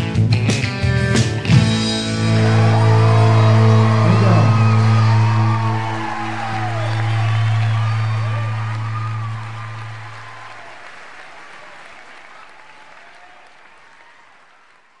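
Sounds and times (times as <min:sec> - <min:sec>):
rock band low held note: 0:01.5 - 0:10.8
audience applause and cheering: 0:01.7 - 0:15.0.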